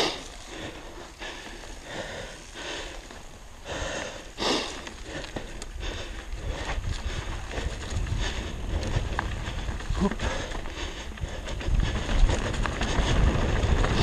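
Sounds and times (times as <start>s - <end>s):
bike tyres crunching dry leaves: 0.0s - 14.0s.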